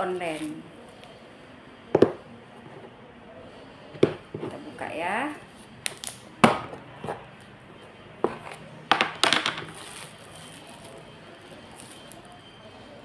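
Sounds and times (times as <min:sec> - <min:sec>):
bubble wrap rustling: 0:09.6 - 0:12.4.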